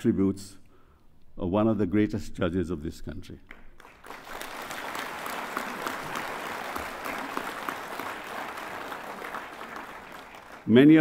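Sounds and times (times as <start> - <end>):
crowd applauding: 3.5 - 11.0.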